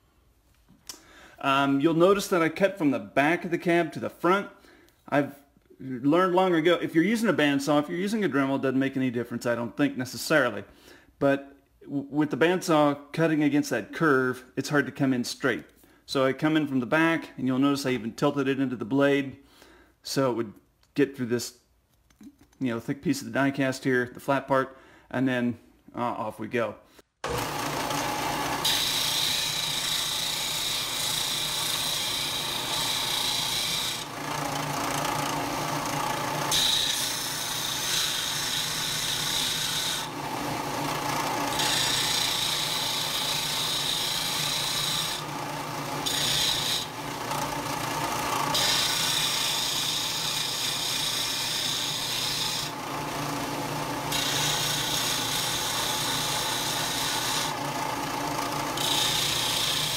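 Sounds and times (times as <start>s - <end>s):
disc sander grinding metal: 27.3s - 59.9s
motor hum: 45.2s - 49.0s.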